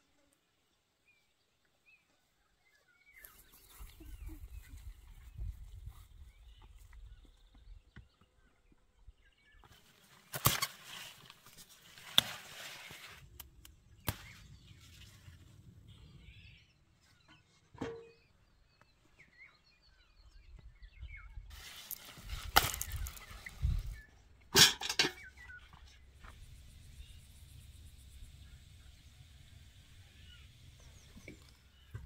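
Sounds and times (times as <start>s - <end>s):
leaves rustling: 9.7s - 13.4s, 21.5s - 24.0s
plant stems snapping: 10.3s - 11.1s, 21.9s - 23.4s.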